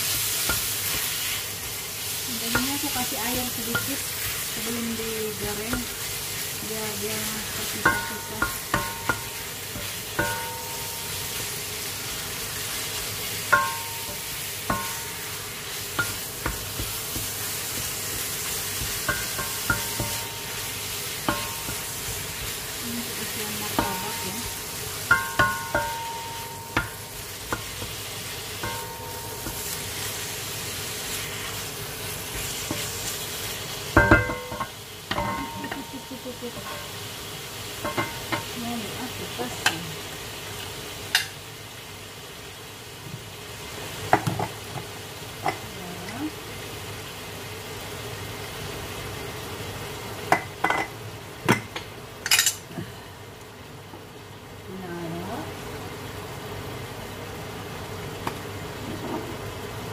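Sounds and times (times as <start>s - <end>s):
meat sizzling in a frying pan: 0.0s - 59.9s
spatula knocking against pan: 7.8s - 11.0s, 13.5s - 15.2s, 16.0s - 20.5s, 23.6s - 28.0s, 28.6s - 29.8s, 34.0s - 35.9s.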